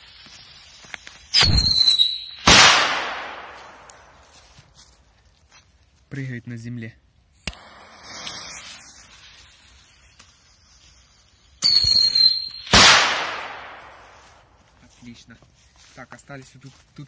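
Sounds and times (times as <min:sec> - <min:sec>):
firecracker high-pitched squeal: 0:00.0 - 0:02.6, 0:07.5 - 0:12.9
firecracker pop and fizzing hiss: 0:00.2 - 0:04.1, 0:07.3 - 0:14.2
firecracker loud bang: 0:01.4 - 0:03.8, 0:11.7 - 0:14.1.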